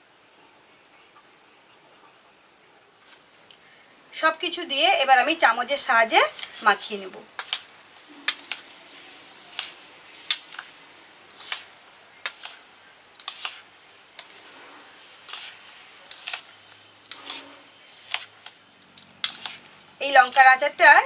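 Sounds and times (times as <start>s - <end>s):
metal spoon scraping bowl: 7.4s - 8.7s, 11.3s - 12.6s, 13.2s - 18.6s, 19.2s - 20.8s.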